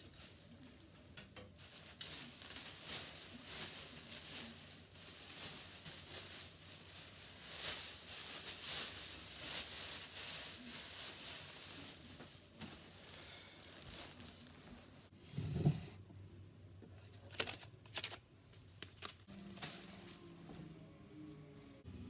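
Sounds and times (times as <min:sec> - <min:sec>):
fabric rustling: 0:01.6 - 0:15.1.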